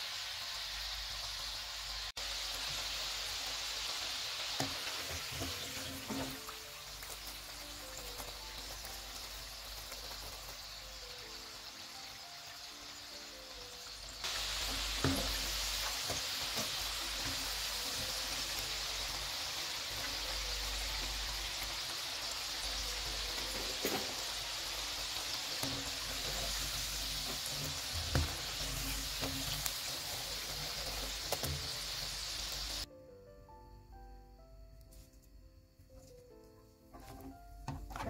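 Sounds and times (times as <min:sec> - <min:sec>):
oil sizzling: 0:00.0 - 0:32.9
oil popping: 0:14.2 - 0:18.0.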